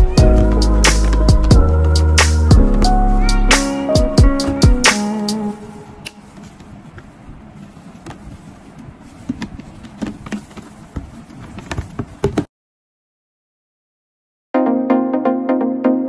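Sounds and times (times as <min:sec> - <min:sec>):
soft rustle of handling: 0:04.5 - 0:12.2.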